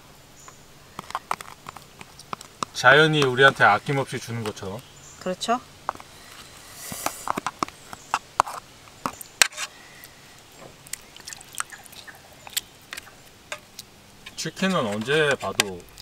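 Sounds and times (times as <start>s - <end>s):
spatula stirring in a pot: 8.4s - 9.8s, 10.9s - 16.0s
wet sloshing: 10.0s - 16.0s.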